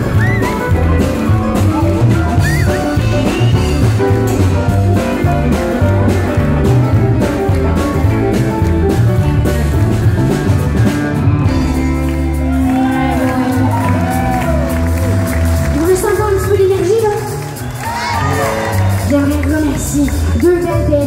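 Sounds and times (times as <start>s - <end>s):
bass line: 0.0s - 21.0s
drums: 0.0s - 21.0s
electric guitar: 0.0s - 21.0s.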